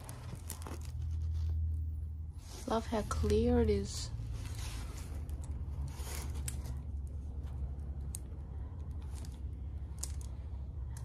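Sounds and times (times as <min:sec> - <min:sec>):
plastic film crinkling: 0:00.0 - 0:01.8
steady low hum: 0:00.0 - 0:11.0.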